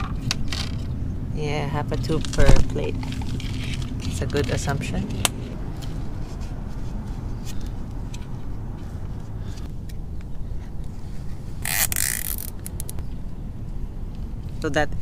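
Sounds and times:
steady low rumble: 0.0s - 15.0s
zip tie zipping rasp: 11.6s - 12.7s
zip tie being threaded: 11.6s - 13.0s.

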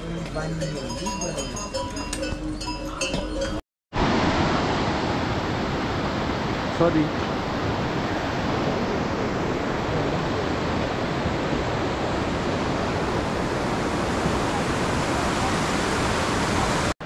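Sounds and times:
fast-flowing stream water: 4.0s - 17.0s.

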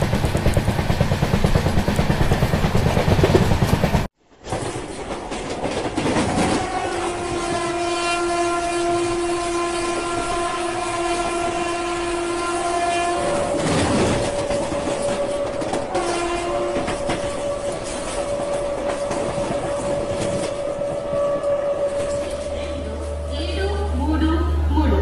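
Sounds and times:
train rumble and wheel clatter: 0.0s - 25.0s
train horn: 6.2s - 24.7s.

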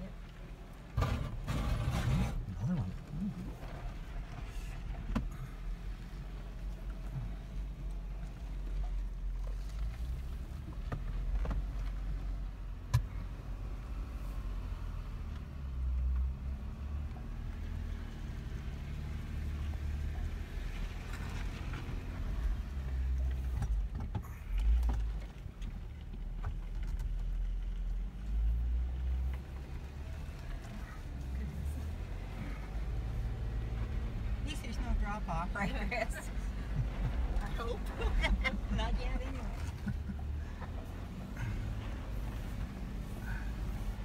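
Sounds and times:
engine rumble: 0.0s - 44.0s.

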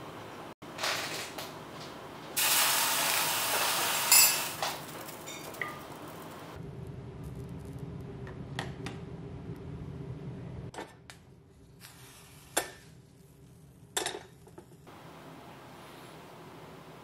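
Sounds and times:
hot plate humming: 1.2s - 6.6s
metallic pan clinks: 4.1s - 4.5s.

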